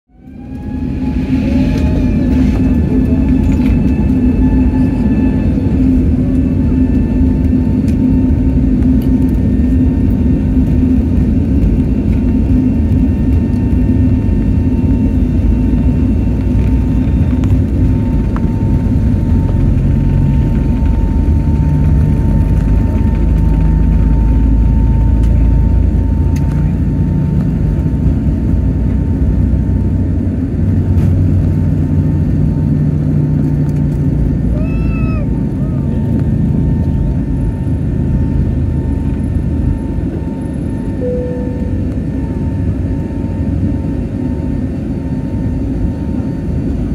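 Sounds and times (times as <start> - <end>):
thin fan whine: 0.1 - 46.5
jet engine rumble and hum: 0.1 - 46.9.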